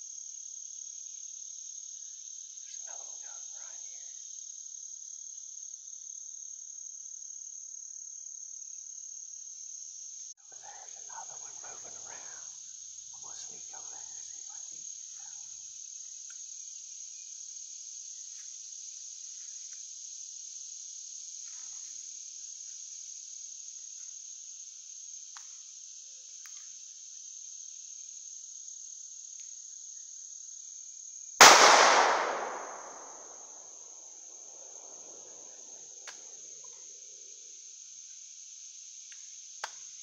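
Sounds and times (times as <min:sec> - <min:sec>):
insects droning: 0:00.0 - 0:40.0
shotgun shot echoing: 0:31.4 - 0:33.4.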